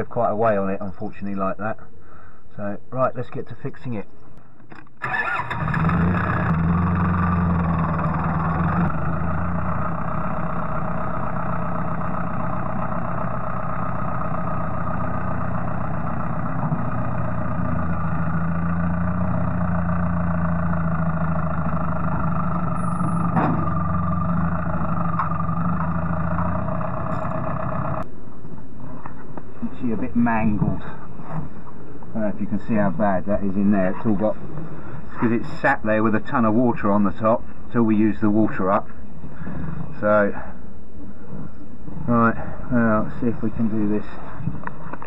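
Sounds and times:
tractor diesel engine: 4.7 - 28.1.

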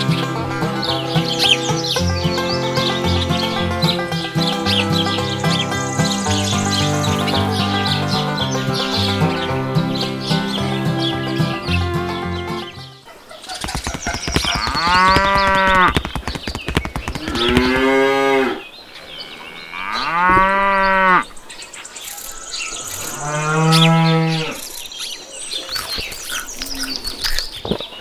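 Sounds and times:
cow mooing: 17.2 - 18.6, 19.6 - 21.2, 22.9 - 24.6.

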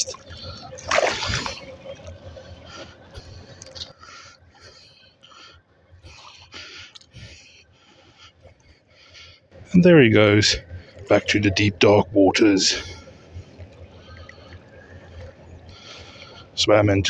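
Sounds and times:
loud splash: 0.8 - 1.6
water splashing among rocks: 0.8 - 1.8.

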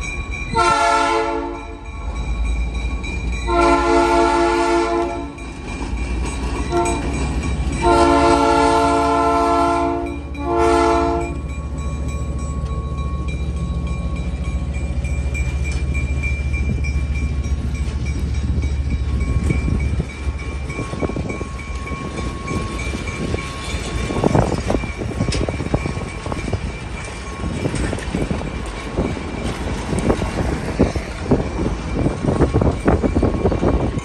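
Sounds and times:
deep rumble of train: 0.0 - 34.0
wheels clattering over rail joints: 5.2 - 9.0, 11.2 - 34.0.

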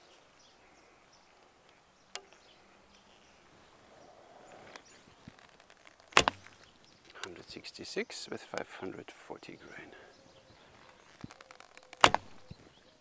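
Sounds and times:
faint outdoor background: 0.0 - 13.0
bowstring snap: 11.1 - 12.6.

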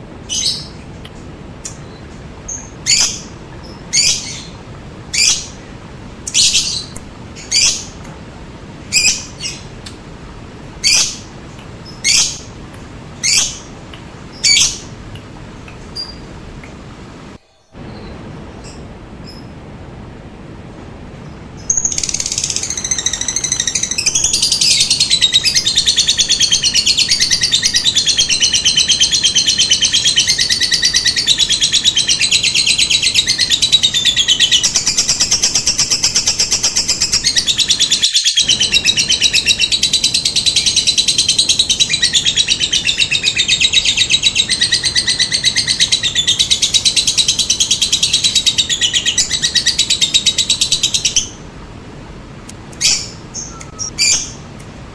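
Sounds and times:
lovebird chattering trill: 21.6 - 51.4.

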